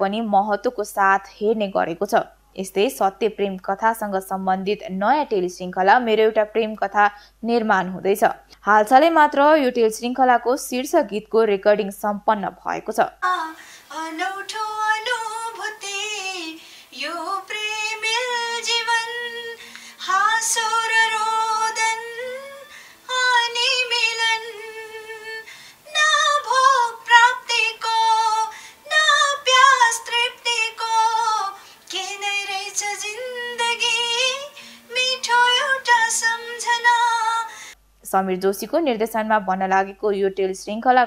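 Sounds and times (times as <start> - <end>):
woman singing solo: 13.2 - 37.8.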